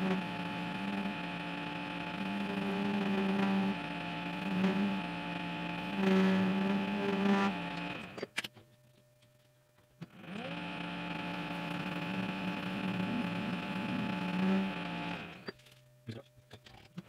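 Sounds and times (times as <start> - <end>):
metal lathe whining and humming: 0.0 - 8.2, 10.1 - 15.5.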